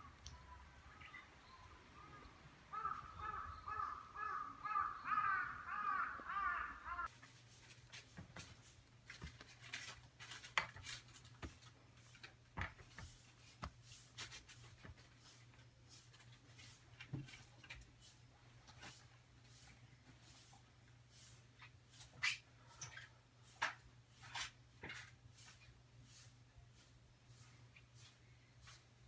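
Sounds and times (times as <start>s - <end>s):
crow cawing: 2.7s - 7.1s.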